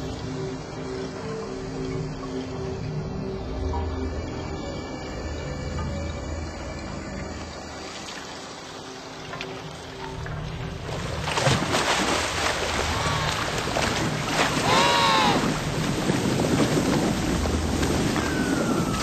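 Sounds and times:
penguin call: 0:14.6 - 0:15.5.

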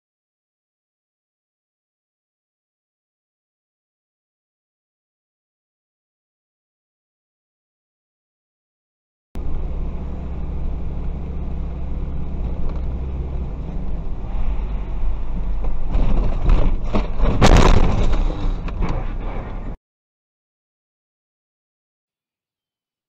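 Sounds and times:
vehicle road and engine rumble: 0:09.4 - 0:19.8
rising clatter: 0:11.4 - 0:19.8
vehicle crash impacts: 0:14.3 - 0:19.8.

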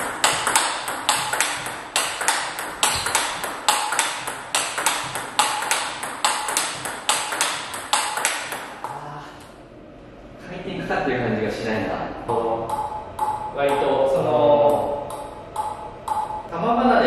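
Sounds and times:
table tennis ball hitting rackets: 0:00.0 - 0:09.0, 0:12.3 - 0:16.5
ball bouncing on table: 0:00.2 - 0:09.0, 0:12.6 - 0:14.0, 0:14.6 - 0:16.4.

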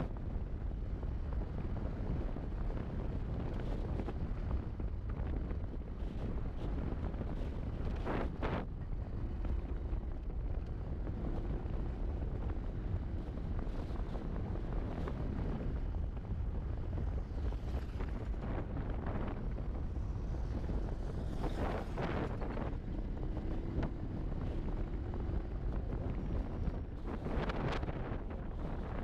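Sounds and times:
wind rumbling on microphone: 0:00.0 - 0:29.0
tyres on road: 0:05.9 - 0:29.0
motorcycle engine running: 0:09.0 - 0:29.0.

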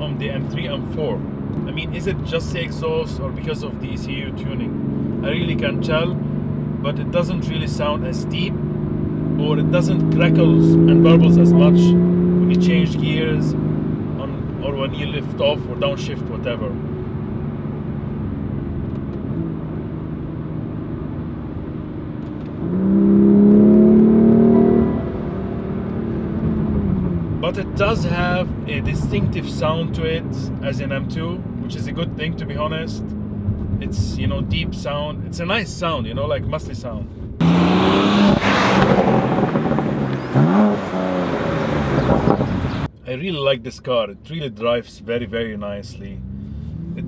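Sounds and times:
car engine accelerating: 0:00.0 - 0:35.4, 0:37.4 - 0:42.9, 0:45.9 - 0:47.0
car engine revving hard: 0:08.5 - 0:14.2, 0:22.0 - 0:28.1, 0:37.4 - 0:42.9.

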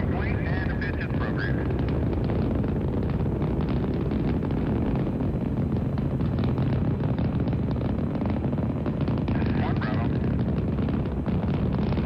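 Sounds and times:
rocket engines rumbling and crackling: 0:00.0 - 0:12.0.

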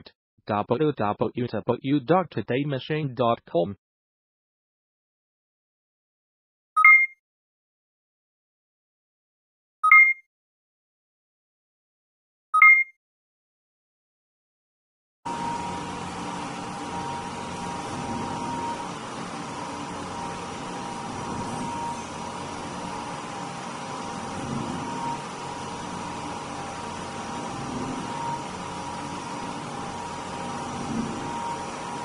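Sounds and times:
powder mixer motor hum: 0:15.3 - 0:32.0.

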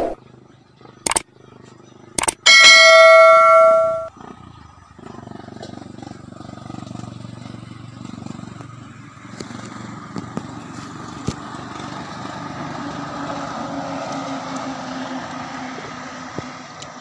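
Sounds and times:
sharp clicks: 0:01.1 - 0:01.3, 0:02.2 - 0:02.4.

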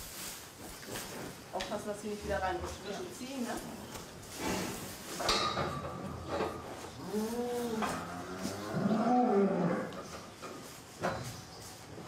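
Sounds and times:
cow lowing: 0:06.0 - 0:10.1.

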